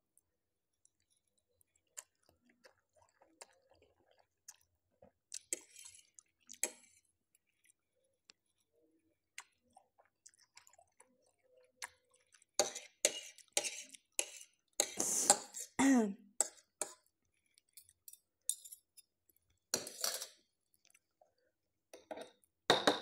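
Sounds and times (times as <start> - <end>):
noodle slurps: 12.6 - 15.8.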